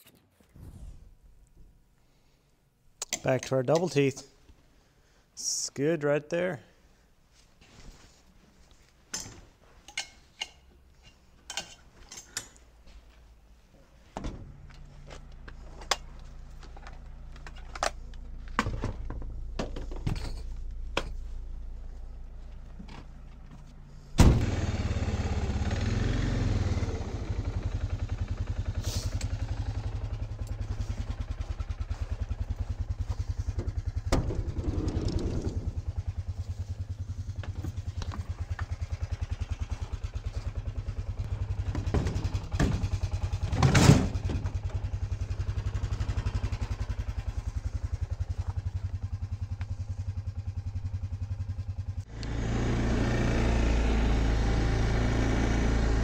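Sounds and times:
low steady hum: 9.9s - 24.4s
engine idling: 14.5s - 56.0s.

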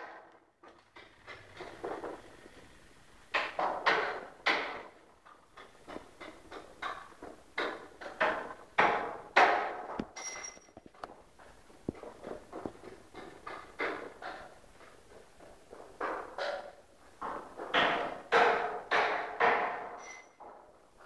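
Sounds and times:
footsteps on bare floor: 10.8s - 18.2s.

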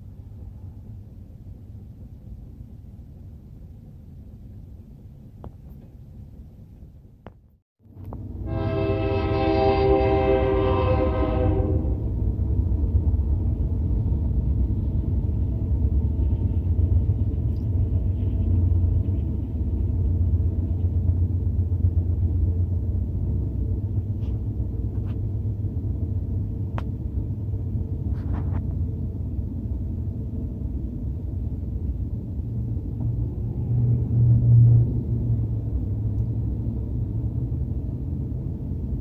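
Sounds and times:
freight train rumbling past: 7.8s - 39.0s.

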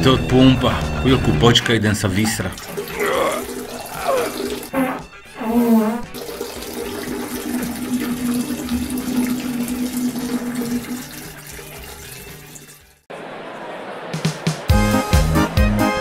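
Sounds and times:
toilet flushing: 2.0s - 13.1s.

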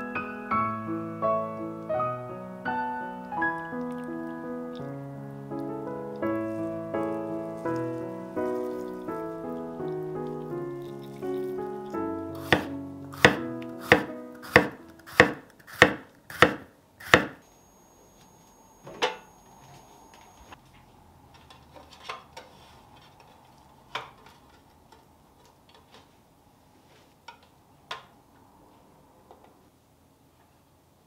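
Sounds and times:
knife chopping on wooden board: 12.4s - 17.4s.

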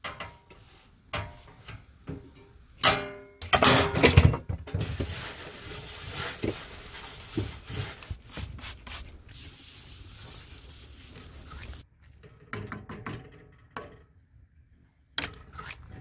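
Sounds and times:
cloth wiping and scrubbing: 4.8s - 11.8s.

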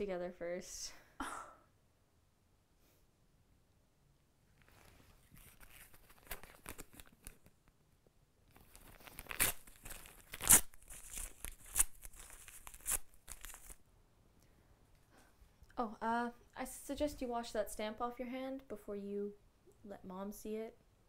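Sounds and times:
paper crinkling and ripping: 4.6s - 7.5s, 8.5s - 13.8s.

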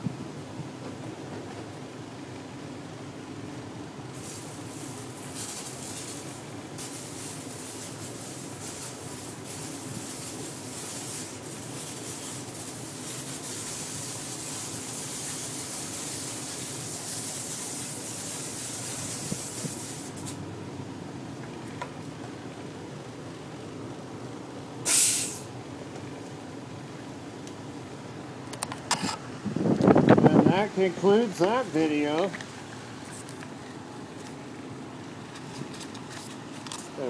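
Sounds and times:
sprayer nozzle hissing mist: 4.2s - 20.4s, 24.9s - 25.4s.

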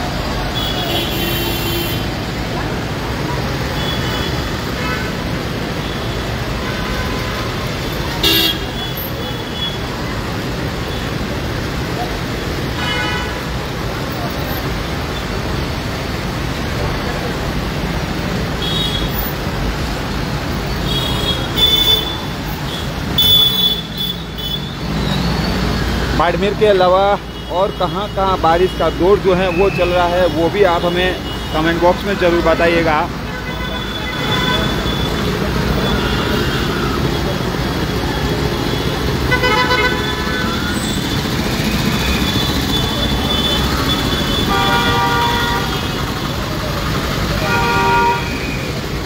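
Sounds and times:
traffic on a wet street: 0.0s - 49.0s
vehicle horn: 8.2s - 9.8s, 39.3s - 40.8s, 42.8s - 46.0s, 47.4s - 48.4s.

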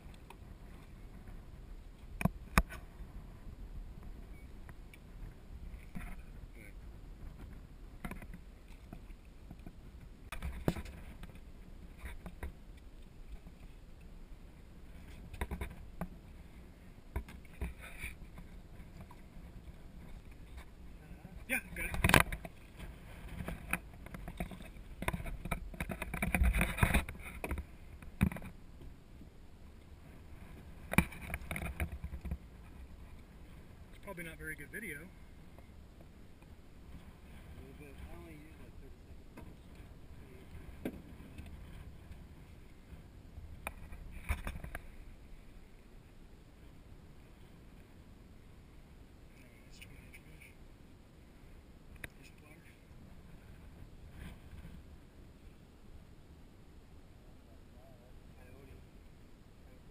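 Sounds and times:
low steady rumble: 0.0s - 59.9s
knocks and clicks on boat: 2.0s - 2.9s, 7.2s - 13.6s, 15.0s - 16.3s, 21.8s - 28.9s.

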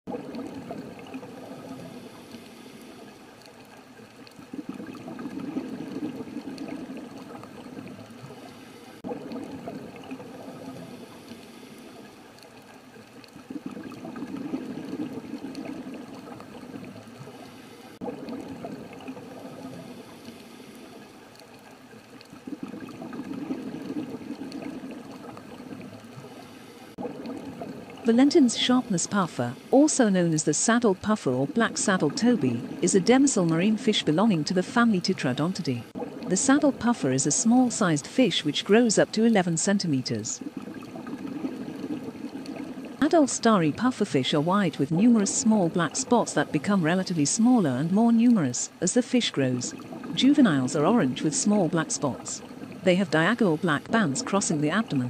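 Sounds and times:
water rushing and bubbling: 0.0s - 55.0s.

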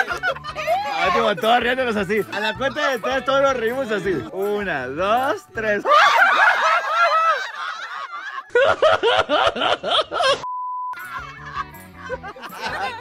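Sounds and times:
group of people laughing: 0.0s - 3.2s, 5.8s - 10.4s, 11.0s - 13.0s
steady bleep tone: 10.4s - 11.0s.

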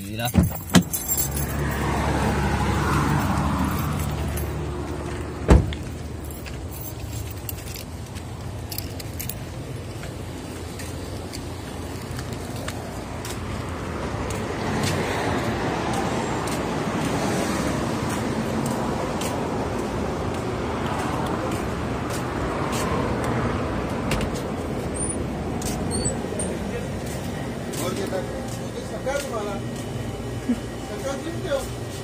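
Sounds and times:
street traffic noise: 0.0s - 32.0s
car door shutting: 0.3s - 1.2s, 5.4s - 5.9s, 24.0s - 25.2s.

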